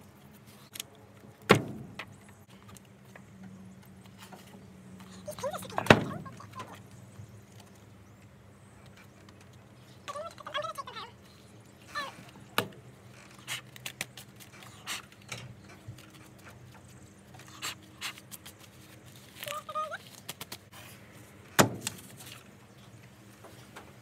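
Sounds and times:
paper rustling: 0:17.4 - 0:21.2.

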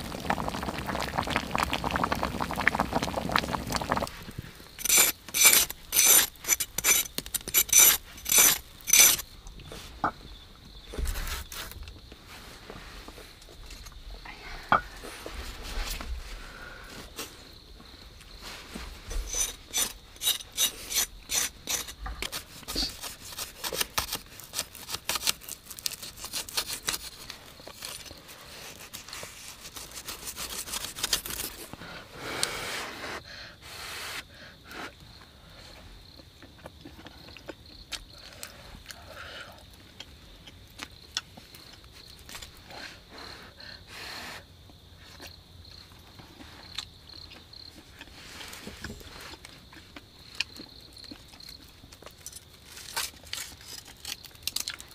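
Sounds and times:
knife scraping: 0:04.8 - 0:09.3, 0:19.1 - 0:31.7
chewing: 0:36.0 - 0:42.5, 0:46.4 - 0:52.4.

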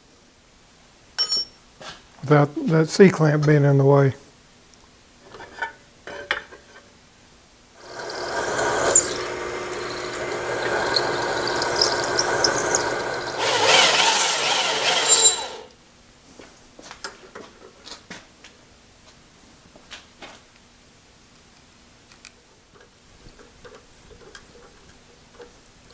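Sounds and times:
drill press squealing in metal: 0:07.8 - 0:15.7.

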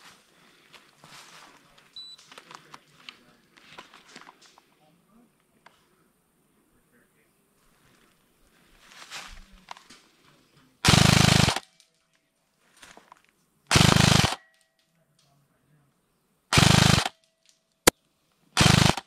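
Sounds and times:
airsoft rifle full-auto bursts: 0:10.8 - 0:11.6, 0:13.7 - 0:14.4, 0:16.5 - 0:17.2, 0:18.6 - 0:19.0.

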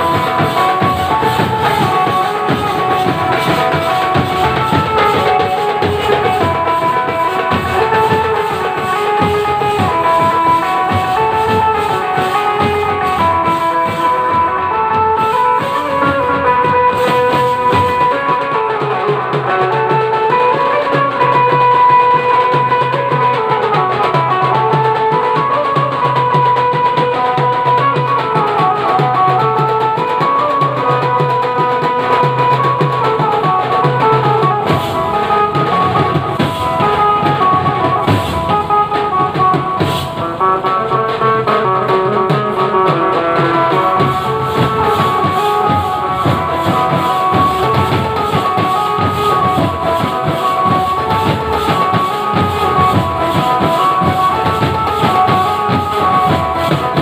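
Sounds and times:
drums beating fast rhythm: 0:00.0 - 0:57.0
melody line over drumming: 0:00.0 - 0:57.0.

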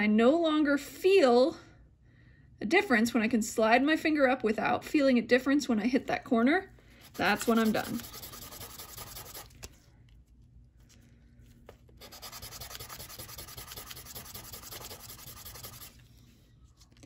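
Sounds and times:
sanding on wet sandpaper: 0:07.1 - 0:09.5, 0:12.0 - 0:16.0.

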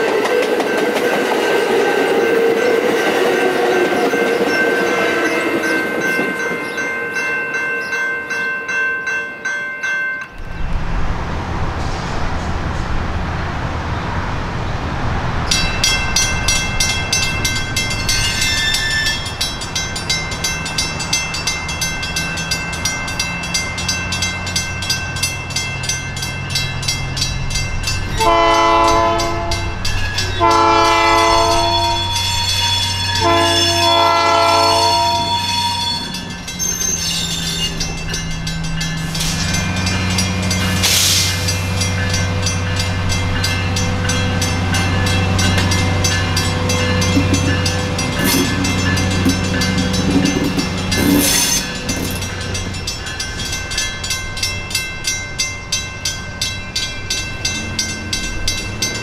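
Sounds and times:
railroad crossing bell ringing: 0:00.0 - 0:10.9, 0:15.4 - 0:59.0
diesel locomotive rumble: 0:10.4 - 0:59.0
train horn blasts: 0:28.2 - 0:29.8, 0:30.4 - 0:36.2.

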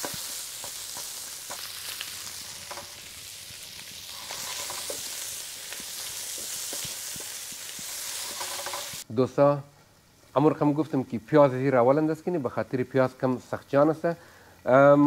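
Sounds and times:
wooden spatula clicking and scraping: 0:00.0 - 0:03.1, 0:04.1 - 0:09.0
food sizzling in a frying pan: 0:00.0 - 0:09.1.

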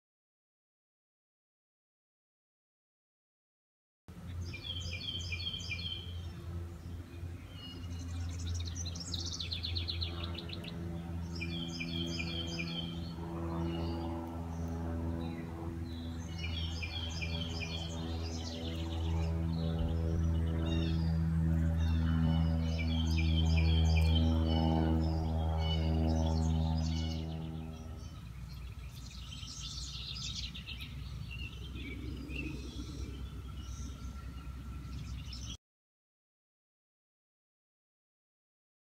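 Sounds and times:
birds chirping: 0:04.1 - 0:35.6
songbirds singing: 0:04.1 - 0:35.6
steady low hum: 0:04.1 - 0:35.6
low background rumble: 0:06.0 - 0:35.4.

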